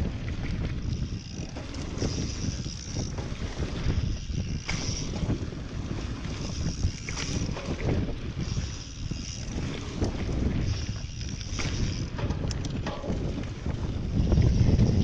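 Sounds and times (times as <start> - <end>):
bike rattling over bumps: 0.0 - 15.0
wind buffeting microphone: 0.0 - 15.0.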